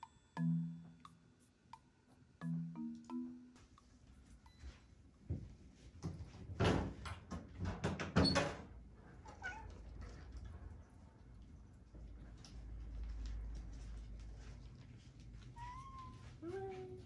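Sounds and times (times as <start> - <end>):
cat meowing: 15.5 - 17.0.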